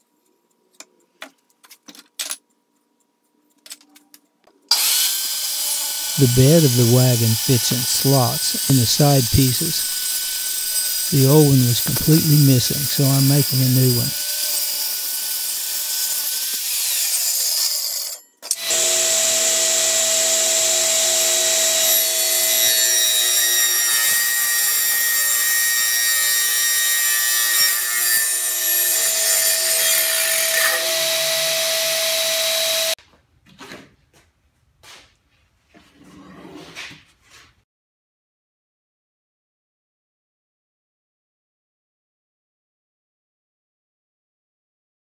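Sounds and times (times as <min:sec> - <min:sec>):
circular saw cutting plywood: 0:04.7 - 0:33.0
radial arm saw cutting plywood: 0:04.7 - 0:33.0.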